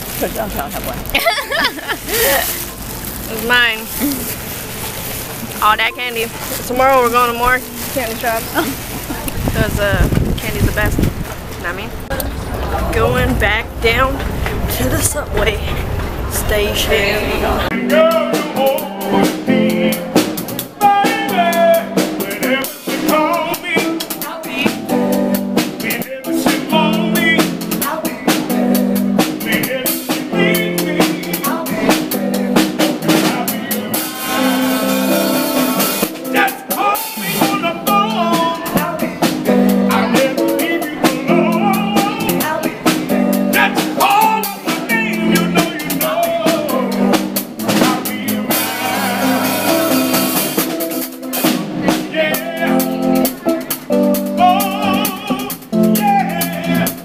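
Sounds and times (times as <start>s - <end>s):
electric guitar: 0.0s - 57.0s
man singing: 16.9s - 57.0s
snare drum and cymbal beat: 31.0s - 52.2s.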